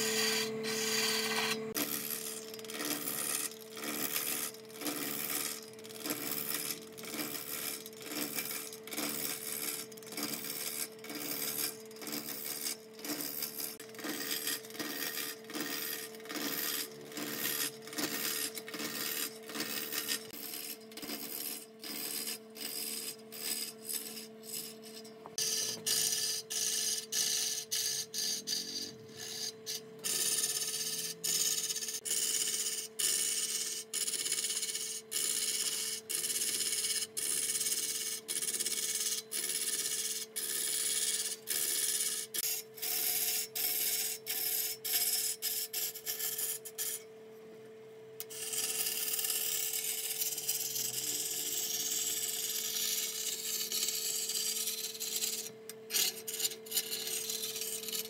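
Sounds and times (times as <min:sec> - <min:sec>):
wood lathe humming: 0:00.0 - 0:24.7
gouge scraping spinning wood: 0:00.0 - 0:47.0, 0:48.2 - 0:58.0.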